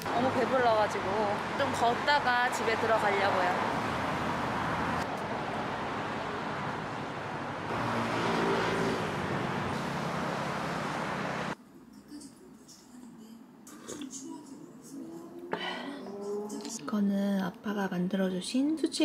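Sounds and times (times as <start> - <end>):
cars passing on road: 0.0 - 11.6, 14.9 - 16.9.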